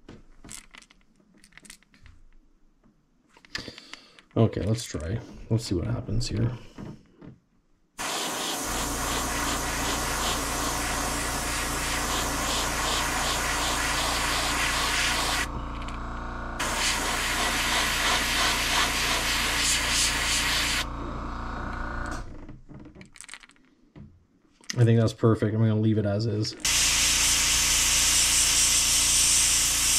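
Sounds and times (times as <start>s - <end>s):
airbrush spraying hiss: 8.0s - 15.5s, 16.6s - 20.9s, 26.6s - 29.9s
low hum: 8.7s - 18.1s, 20.2s - 22.4s.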